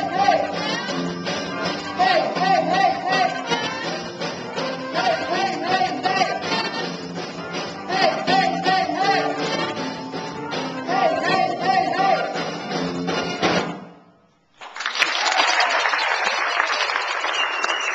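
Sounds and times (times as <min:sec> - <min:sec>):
man singing into a microphone: 0:00.0 - 0:00.8, 0:01.9 - 0:03.9, 0:04.8 - 0:06.7, 0:07.8 - 0:09.7, 0:10.8 - 0:12.4
drum kit beat: 0:00.0 - 0:13.8
live band music: 0:00.0 - 0:14.0.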